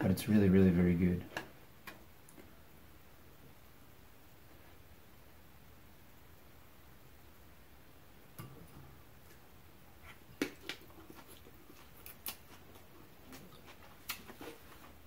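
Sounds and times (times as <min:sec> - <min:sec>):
person chewing noodles: 0:10.0 - 0:15.0.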